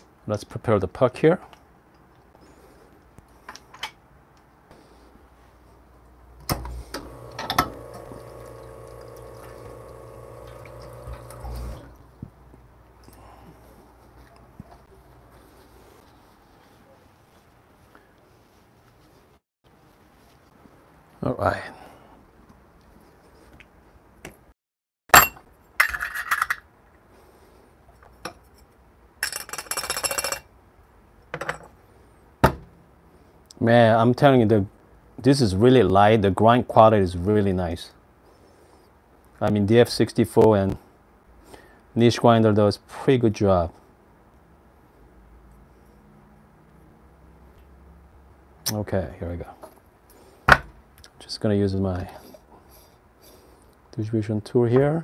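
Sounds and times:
small electric motor humming: 7.0s - 11.9s.

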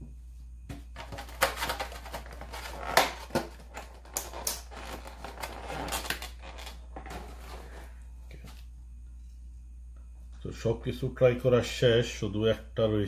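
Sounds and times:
plastic container crinkling and snapping: 1.0s - 7.2s.

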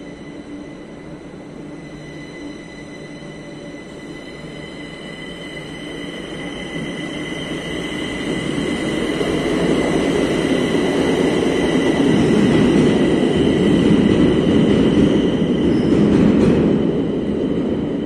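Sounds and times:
train wheels rumbling on rail: 0.0s - 18.0s.

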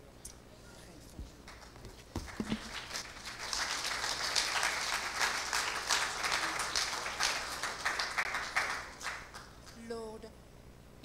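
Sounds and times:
congregation applauding: 1.5s - 9.8s.

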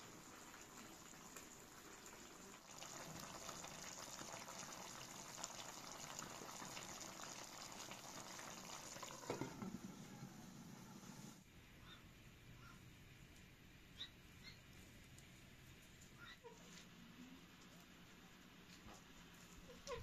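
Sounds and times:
stew simmering on gas burner: 0.0s - 11.5s.

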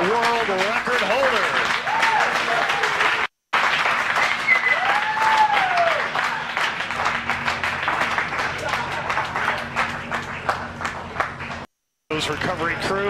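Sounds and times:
crowd applauding and cheering: 0.0s - 11.7s
person whooping: 1.8s - 3.2s, 4.4s - 6.5s.

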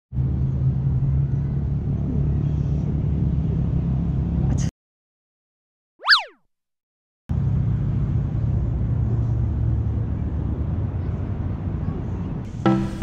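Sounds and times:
low outdoor rumble: 0.2s - 4.7s
electronic swoosh effect: 6.0s - 6.3s.

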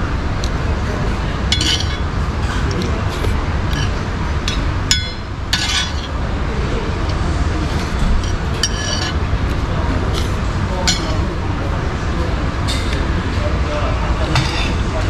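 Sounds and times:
low background rumble: 0.0s - 14.2s
metal spoon clinking on skillet: 1.5s - 2.1s, 3.7s - 6.2s, 8.2s - 9.2s.

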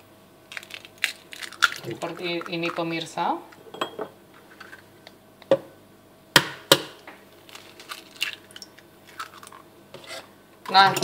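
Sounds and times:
egg cracking on glass bowl: 0.5s - 2.8s, 7.7s - 9.6s.

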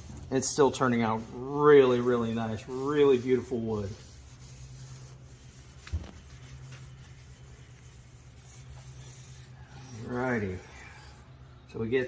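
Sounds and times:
rag rubbing on wood: 0.4s - 11.2s.

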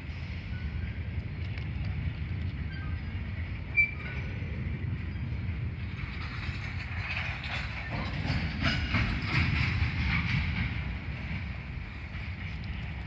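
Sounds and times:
passenger train rolling past: 0.0s - 13.0s
wheel clatter and metallic rattling: 5.1s - 13.0s.

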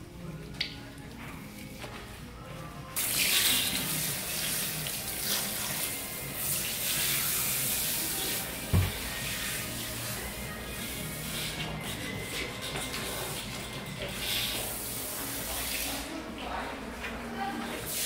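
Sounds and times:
hand sprayer spraying water on hair: 3.0s - 11.7s, 14.2s - 16.2s.

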